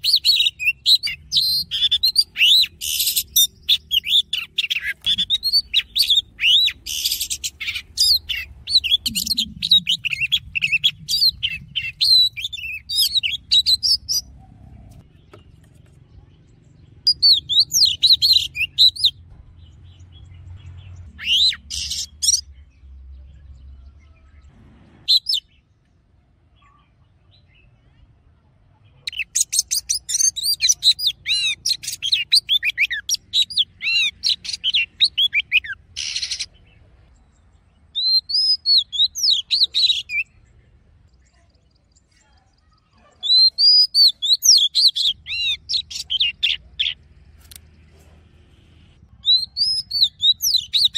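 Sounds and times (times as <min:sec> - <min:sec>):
bird singing whistled notes: 0:00.0 - 0:14.3, 0:17.1 - 0:19.2, 0:21.1 - 0:22.5, 0:25.1 - 0:25.6, 0:37.9 - 0:40.4, 0:43.2 - 0:47.0, 0:49.1 - 0:50.9.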